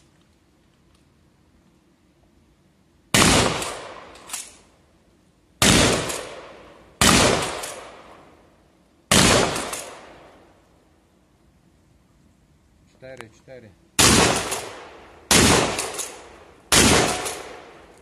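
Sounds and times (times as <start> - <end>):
shotgun shots echoing: 3.1 - 4.6, 5.6 - 8.2, 9.1 - 10.4, 14.0 - 17.9.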